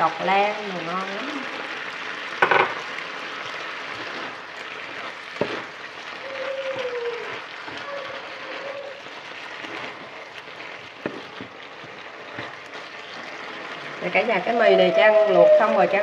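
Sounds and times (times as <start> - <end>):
vegetables sizzling in a frying pan: 0.0 - 16.0
utensils clattering against pan: 2.4 - 2.8.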